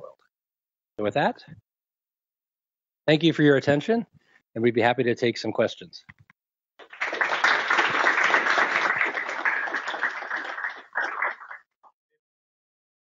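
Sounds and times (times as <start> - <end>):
audience applauding: 6.8 - 11.7.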